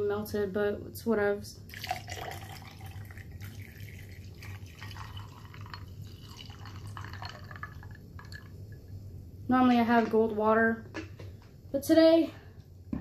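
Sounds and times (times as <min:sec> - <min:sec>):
iced tea pouring into glass: 0:01.7 - 0:08.6.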